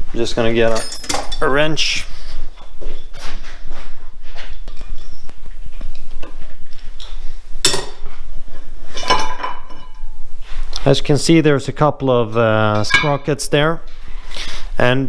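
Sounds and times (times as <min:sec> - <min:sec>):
metal tools clinking: 0:00.4 - 0:02.0, 0:12.8 - 0:13.4
sharp metallic clank: 0:12.8 - 0:13.4.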